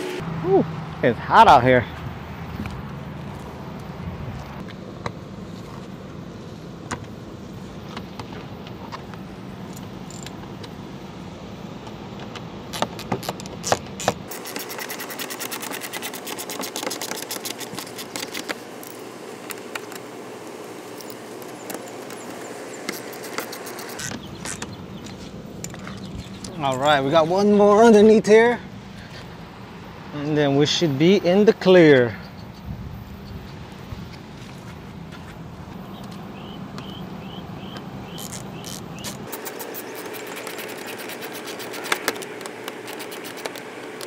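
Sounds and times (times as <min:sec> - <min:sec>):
steady hum: 0:00.0 - 0:44.0
hand tools clicking and tapping: 0:12.2 - 0:20.1, 0:38.7 - 0:44.0
fast fine clicks: 0:12.8 - 0:20.1, 0:38.5 - 0:44.0.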